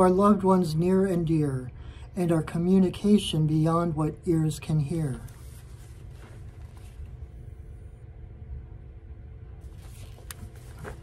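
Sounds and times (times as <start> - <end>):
book pages rustling: 5.2 - 7.4, 9.6 - 11.0.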